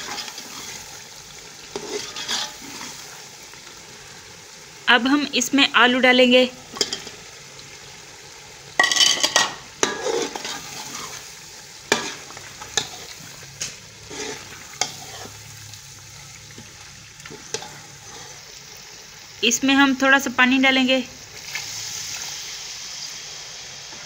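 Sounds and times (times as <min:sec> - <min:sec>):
food sizzling in a pot: 0:00.0 - 0:24.0.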